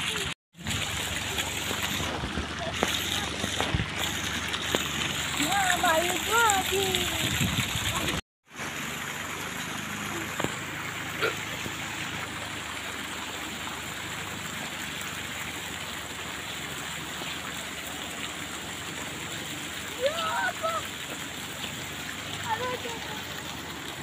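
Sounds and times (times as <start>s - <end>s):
fountain water splashing: 0.0s - 24.0s.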